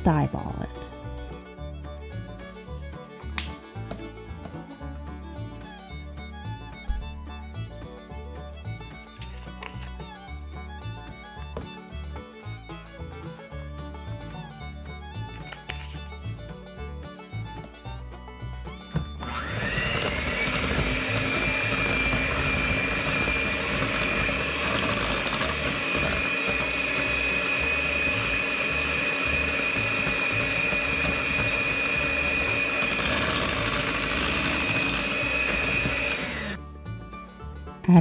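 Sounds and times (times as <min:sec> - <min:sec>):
electric hand mixer whine: 0:18.9 - 0:36.6.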